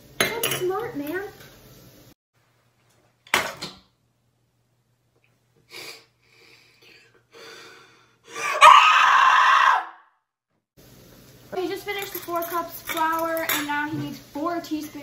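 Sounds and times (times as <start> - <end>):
person sharp breath: 5.7 - 8.6
person crying out loudly: 8.4 - 9.9.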